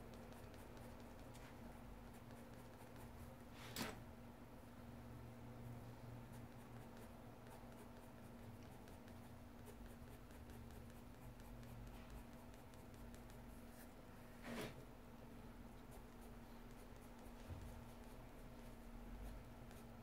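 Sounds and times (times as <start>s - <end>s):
pencil scratching on paper: 0.1s - 1.3s, 6.3s - 13.9s, 15.8s - 20.0s.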